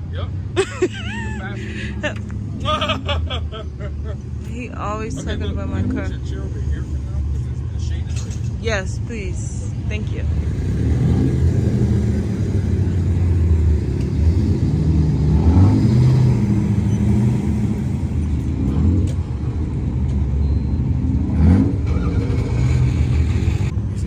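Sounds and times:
car engines running: 0.0 - 24.0
engine revving: 10.2 - 19.6, 20.6 - 23.8.

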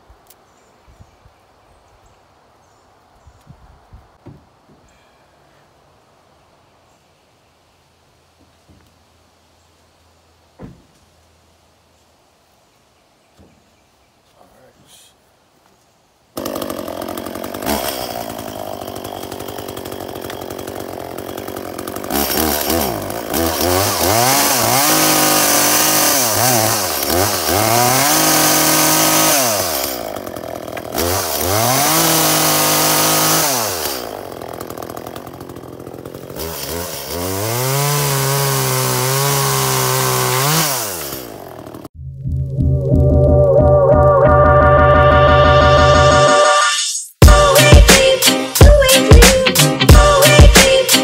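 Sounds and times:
chainsaw revving and idling: 16.4 - 42.0, 47.2 - 51.0.

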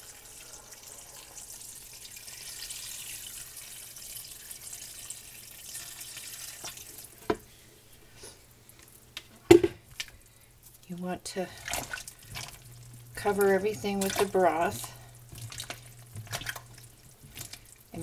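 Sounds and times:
liquid pouring into pot: 0.0 - 7.2, 11.6 - 17.9.

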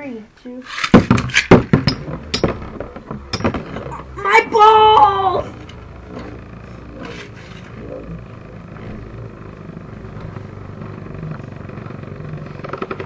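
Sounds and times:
spinning top whirring on plastic: 4.9 - 13.0.

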